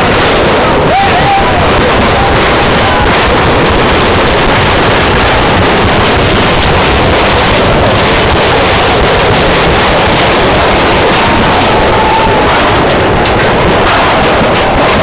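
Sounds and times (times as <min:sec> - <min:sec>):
distorted crowd noise: 0:00.0 - 0:15.0
wind buffeting microphone: 0:00.0 - 0:15.0.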